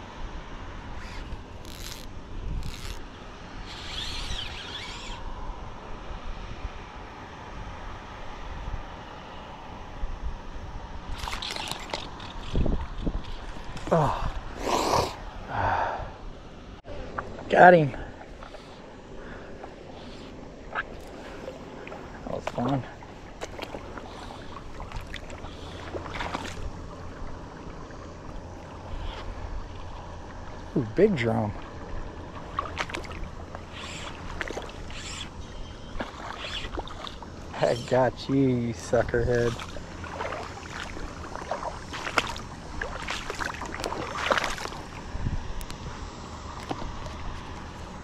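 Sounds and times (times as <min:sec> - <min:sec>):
wind buffeting microphone: 0:12.1 - 0:16.3, 0:34.2 - 0:48.0
shallow water splashing: 0:18.0 - 0:30.6, 0:31.4 - 0:38.0, 0:38.8 - 0:45.2.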